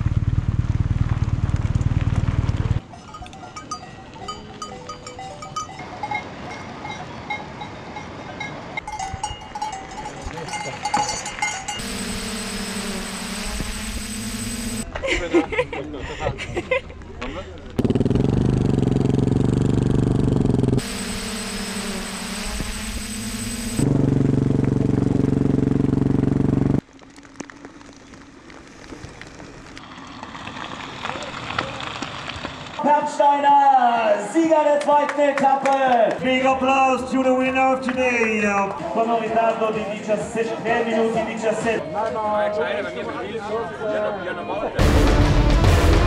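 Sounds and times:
cowbells clanking: 0:02.8 - 0:11.8
engine running steadily: 0:11.7 - 0:14.8, 0:17.6 - 0:26.8
steady droning hum: 0:11.8 - 0:14.8, 0:20.8 - 0:24.1.

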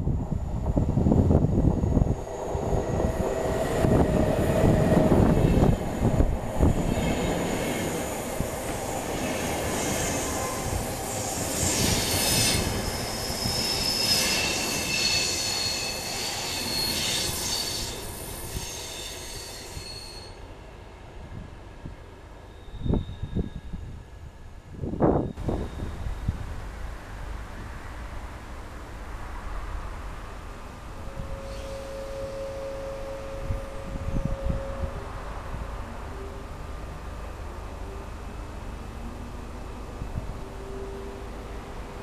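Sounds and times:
train wheels rumbling on rail: 0:00.0 - 0:20.6
brake and wheel squeal: 0:11.7 - 0:20.4, 0:31.3 - 0:33.2.

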